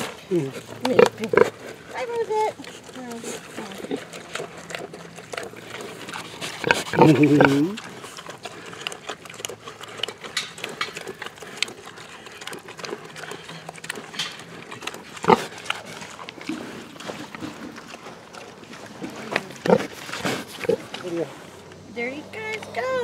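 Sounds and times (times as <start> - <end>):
pigs chewing and crunching feed: 0.0 - 23.0.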